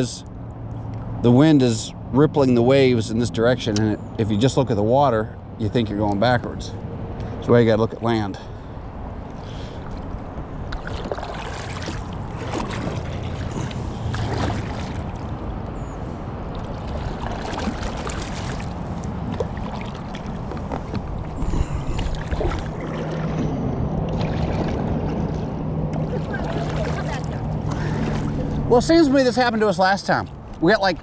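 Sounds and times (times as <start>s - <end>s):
kayak paddles splashing water: 9.3s - 15.7s, 16.4s - 31.0s
wind on microphone: 12.5s - 25.5s.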